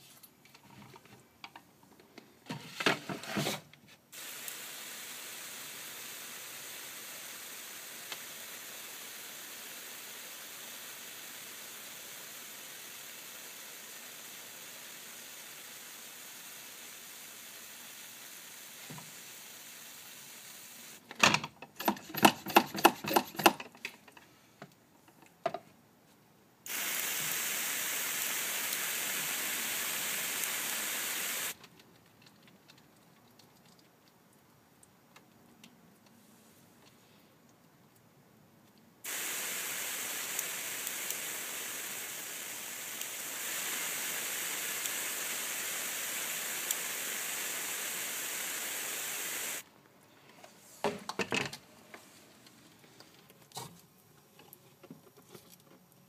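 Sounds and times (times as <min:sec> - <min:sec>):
short spray bursts: 0:04.1 - 0:21.0, 0:26.7 - 0:31.6, 0:39.0 - 0:49.6
water spray mister hissing: 0:04.2 - 0:21.0, 0:26.7 - 0:31.6, 0:39.0 - 0:49.6.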